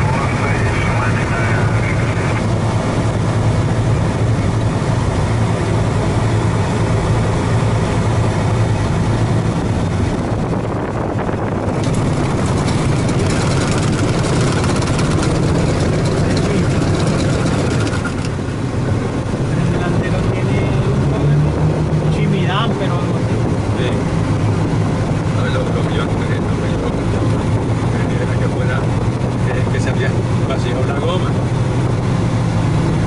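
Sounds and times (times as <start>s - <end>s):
aircraft engine drone: 0.0s - 33.0s
fine rapid rattle: 10.2s - 18.6s.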